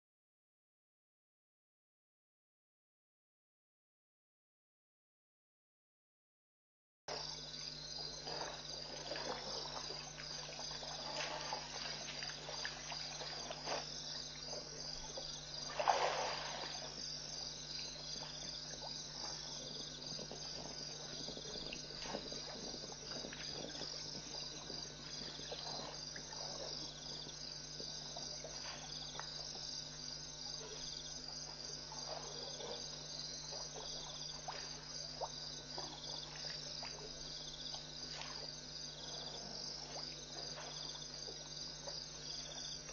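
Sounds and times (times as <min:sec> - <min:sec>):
crickets and insects chirping: 0:07.1 - 0:42.9
elephants splashing water: 0:08.2 - 0:27.2, 0:30.6 - 0:41.4.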